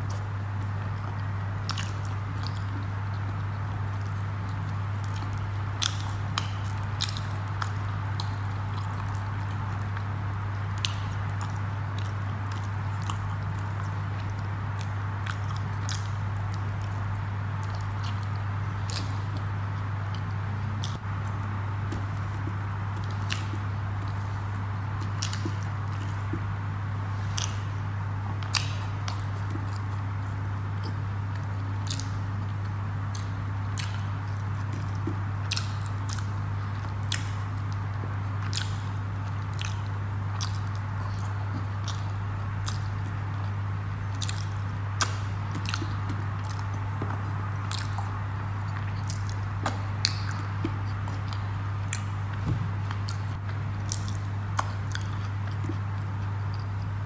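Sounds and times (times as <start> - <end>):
fingers squishing food: 0.0 - 57.0
person chewing soft food: 0.0 - 57.0
steady low hum: 0.0 - 57.0.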